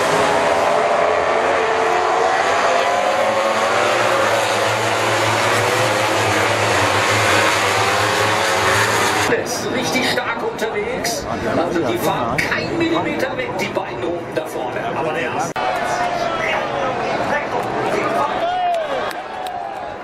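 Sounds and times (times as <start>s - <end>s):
racing motorcycles at high revs: 0.0s - 9.3s.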